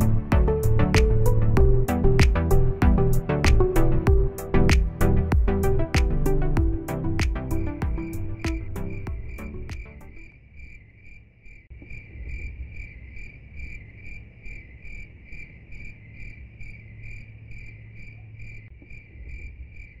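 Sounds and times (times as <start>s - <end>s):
low hum: 0.0s - 10.3s
cricket chirping: 7.6s - 20.0s.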